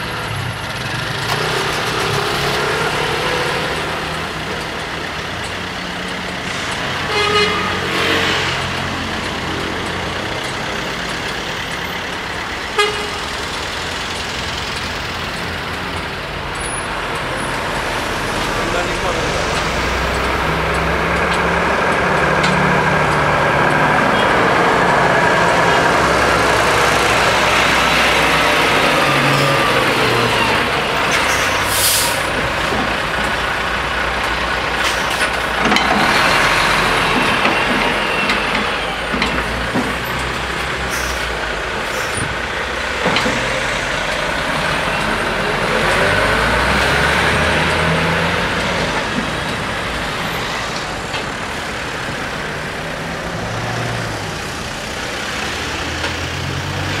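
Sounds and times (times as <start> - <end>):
car traffic: 0.0 - 57.0
truck diesel engine driving past: 0.0 - 57.0
air brakes hissing: 31.1 - 32.3, 40.8 - 42.3.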